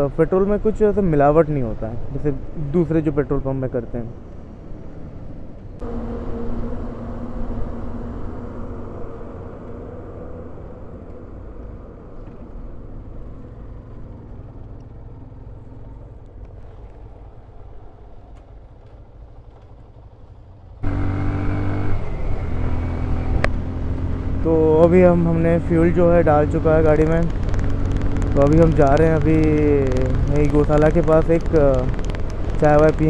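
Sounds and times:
motorcycle engine running: 22.5s - 33.0s.

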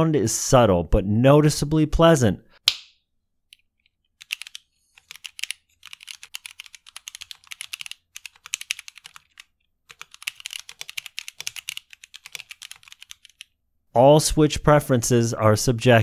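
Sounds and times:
fast typing on mechanical keyboard: 4.2s - 13.5s.

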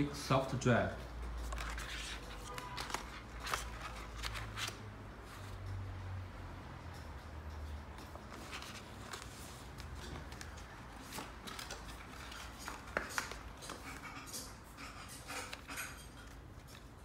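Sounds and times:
packaging rustling: 1.4s - 4.8s.

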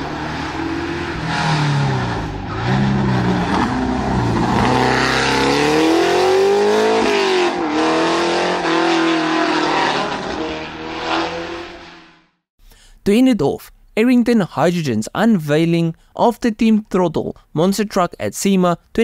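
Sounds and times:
race car engine accelerating: 0.0s - 12.3s.

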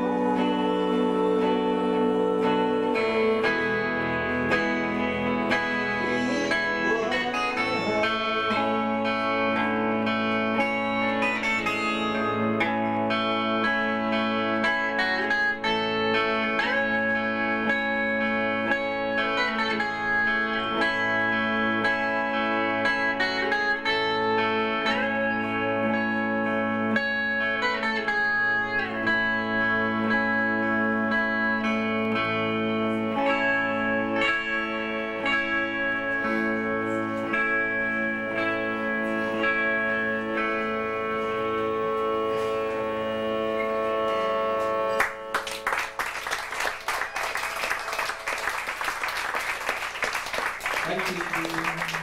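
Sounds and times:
live band guitar music: 0.0s - 52.0s
audience applause: 44.9s - 52.0s.

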